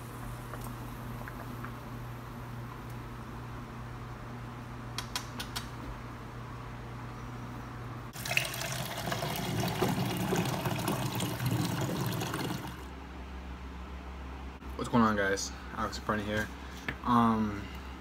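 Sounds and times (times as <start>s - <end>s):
water pouring into cup: 8.2s - 12.9s.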